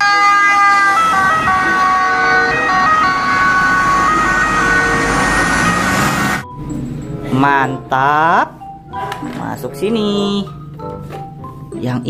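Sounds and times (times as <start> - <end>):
ambulance two-tone siren: 0.0 - 6.7
road traffic noise: 0.0 - 11.8.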